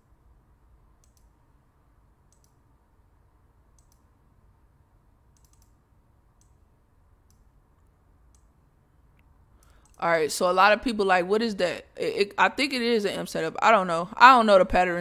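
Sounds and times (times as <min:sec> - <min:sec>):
faint computer mouse clicks: 0:01.0 - 0:01.4, 0:02.3 - 0:02.6, 0:03.8 - 0:04.1, 0:05.3 - 0:05.8, 0:09.2 - 0:10.0.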